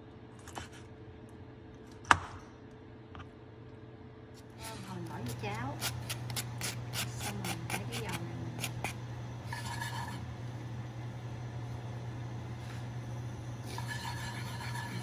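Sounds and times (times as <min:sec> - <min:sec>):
chopsticks scraping frying pan: 0:04.6 - 0:10.3, 0:13.6 - 0:15.0
low hum: 0:06.8 - 0:15.0.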